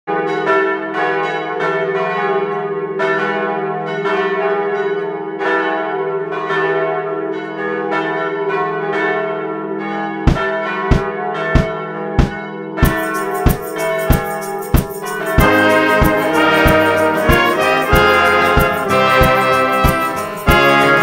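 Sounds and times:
church bells ringing: 0:00.1 - 0:21.0
sharp thumps: 0:10.3 - 0:20.2.

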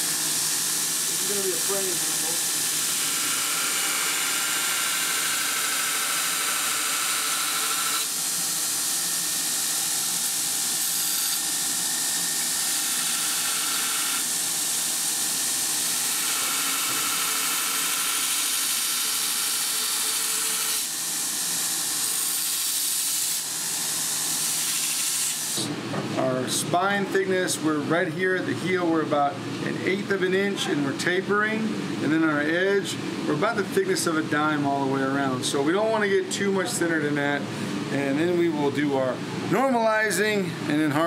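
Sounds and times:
belt grinder grinding steel: 0:00.0 - 0:23.5.

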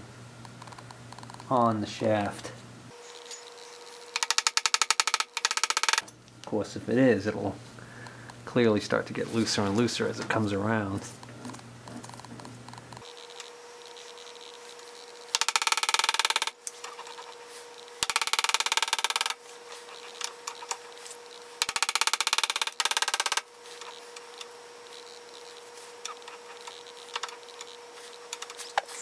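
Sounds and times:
faint steady hum: 0:00.0 - 0:29.0
gear teeth clicking rattle: 0:04.1 - 0:06.0, 0:15.3 - 0:16.5, 0:21.6 - 0:23.4.

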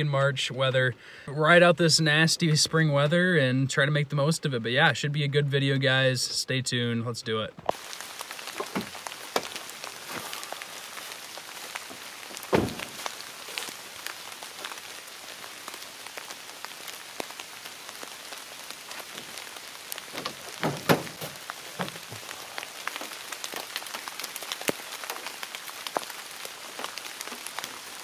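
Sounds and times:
rain falling on leaf litter: 0:07.7 - 0:28.0
dull knocks: 0:12.5 - 0:13.0, 0:20.1 - 0:22.2.

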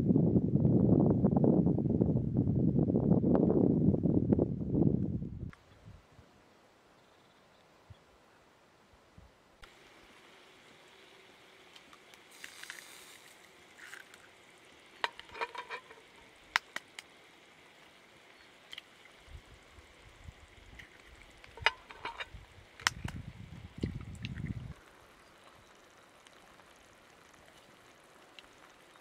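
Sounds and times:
faint low sizzle: 0:04.7 - 0:29.0
eggshells cracking on pan: 0:11.8 - 0:14.3, 0:15.0 - 0:17.1.

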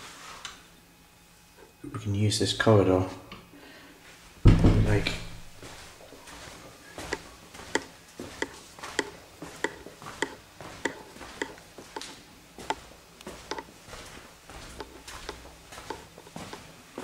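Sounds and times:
footsteps in a corridor: 0:04.0 - 0:17.0.

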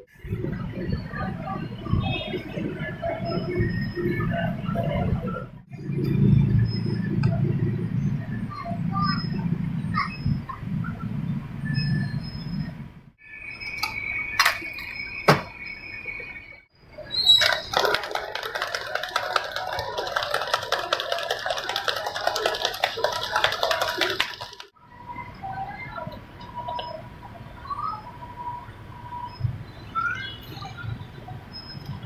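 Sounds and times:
ice rattling in drink shaker: 0:17.4 - 0:24.7.

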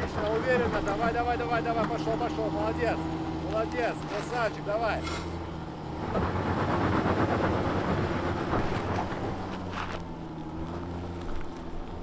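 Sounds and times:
suv engine under load: 0:00.0 - 0:12.0
tyres scrabbling in sand: 0:00.1 - 0:05.5, 0:07.9 - 0:12.0.

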